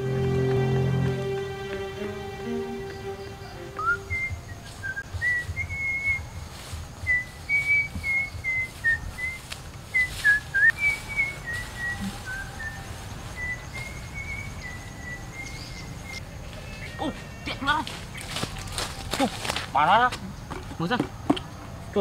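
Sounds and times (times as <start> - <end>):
person whistling a tune: 3.8 - 6.2, 7.1 - 12.8.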